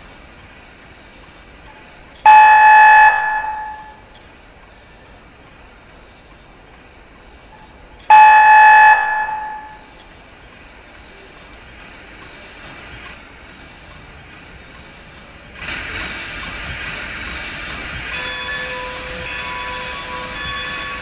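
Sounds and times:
steam whistle blasts: 2.2 - 4.0, 8.1 - 9.8, 18.1 - 21.0.

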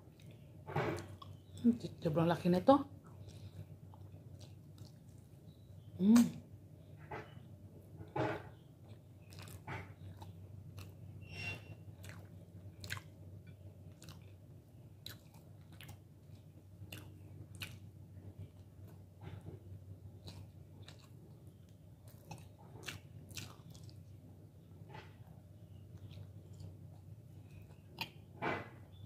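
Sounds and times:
close-up chewing: 3.0 - 5.9, 8.8 - 28.3.

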